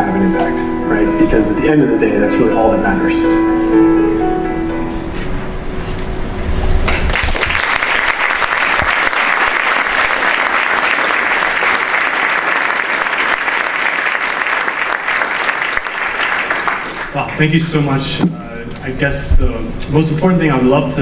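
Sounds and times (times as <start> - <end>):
background music: 0.0 - 7.1
audience applauding: 6.9 - 17.4.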